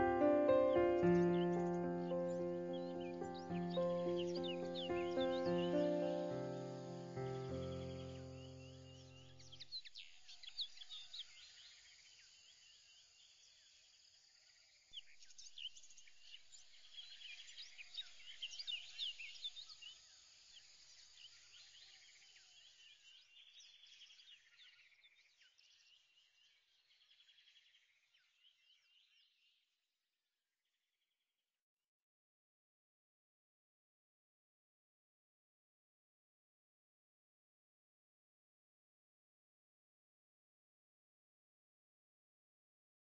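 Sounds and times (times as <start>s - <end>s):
small birds chirping: 0.0s - 13.8s, 15.0s - 29.6s.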